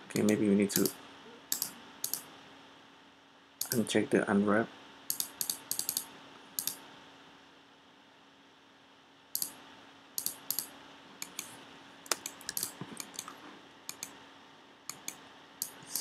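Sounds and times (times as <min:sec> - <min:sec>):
faint steady hum: 0:00.0 - 0:16.0
mouse and keyboard clicks: 0:00.2 - 0:02.2, 0:05.1 - 0:06.8, 0:10.2 - 0:11.5, 0:12.1 - 0:14.2, 0:14.9 - 0:16.0.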